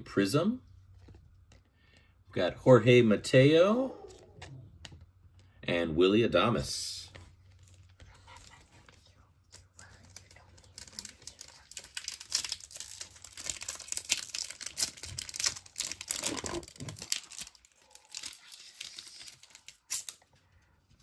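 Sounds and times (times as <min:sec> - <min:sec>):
wrapper tearing and crinkling: 0:10.2 - 0:20.3.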